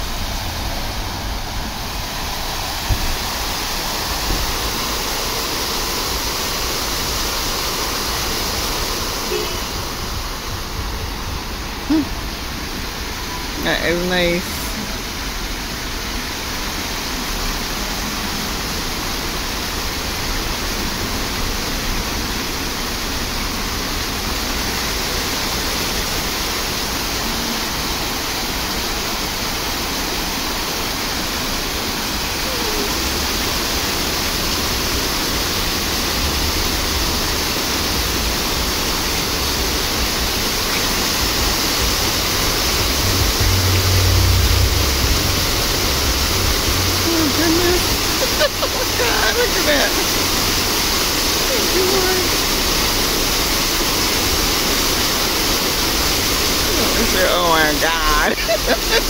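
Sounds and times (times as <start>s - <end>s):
fountain jets splashing: 0.0s - 59.0s
low rumble: 41.1s - 49.0s.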